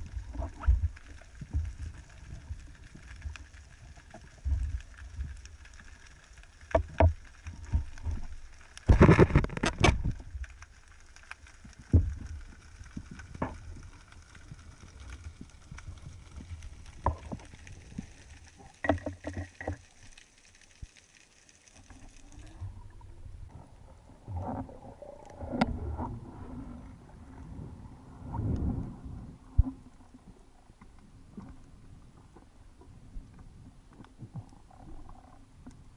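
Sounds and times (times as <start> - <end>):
low underwater rumble: 0.0 - 20.2, 21.8 - 35.9
gear clicking underwater: 0.0 - 23.7, 24.3 - 26.2
muffled rushing water: 0.0 - 35.9.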